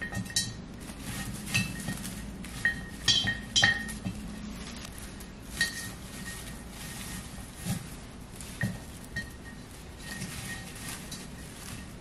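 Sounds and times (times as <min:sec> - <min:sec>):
stems clinking on ceramic vase: 0:00.0 - 0:12.0.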